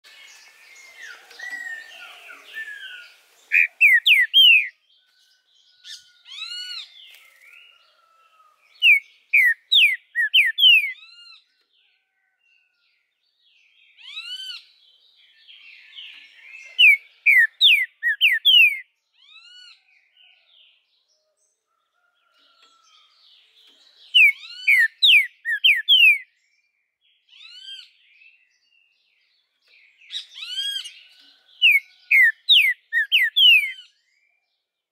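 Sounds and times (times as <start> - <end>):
soft bird chatter: 0.0 - 34.9
bird whistled song: 0.1 - 4.8, 8.7 - 11.4, 15.5 - 19.8, 24.0 - 26.4, 30.0 - 31.0, 31.6 - 34.0.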